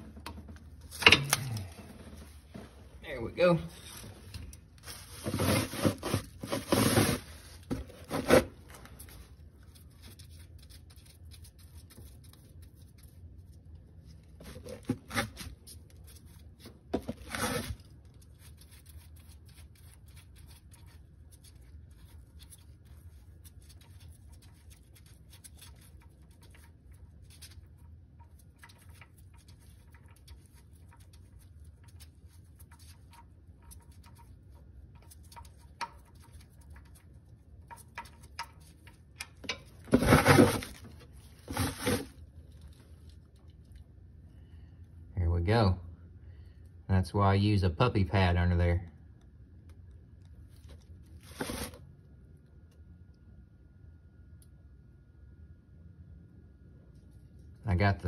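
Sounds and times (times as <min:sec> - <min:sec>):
plastic drain pan scraping: 0:04.9 - 0:08.8, 0:39.8 - 0:42.2.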